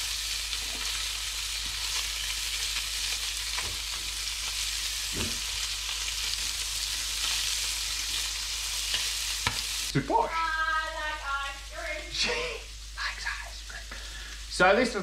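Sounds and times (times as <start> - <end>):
fish sizzling in butter: 0.0 - 15.0.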